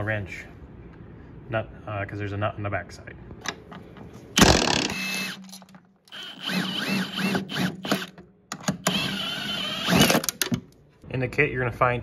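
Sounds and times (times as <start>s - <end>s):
impact wrench impacting: 4.4s - 9.1s.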